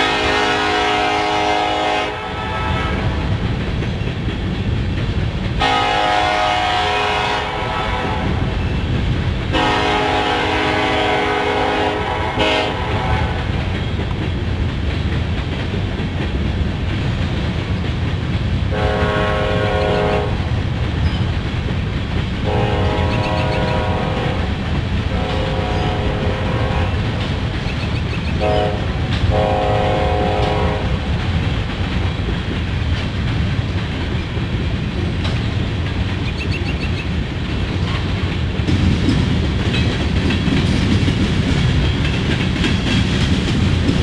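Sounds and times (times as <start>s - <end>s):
locomotive horn blasts: 0.0s - 3.3s, 5.6s - 8.4s, 9.5s - 13.5s, 18.7s - 20.5s, 22.4s - 24.5s, 25.1s - 27.1s, 28.4s - 31.0s
train cars rumbling and clattering: 0.0s - 44.0s.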